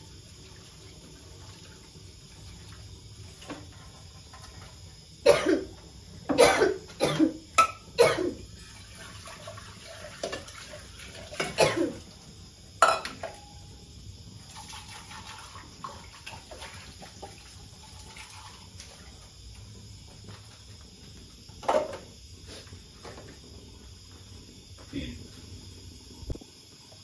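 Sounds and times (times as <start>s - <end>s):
person coughing: 5.3s - 5.7s, 6.3s - 7.4s, 8.0s - 8.4s, 11.5s - 12.0s.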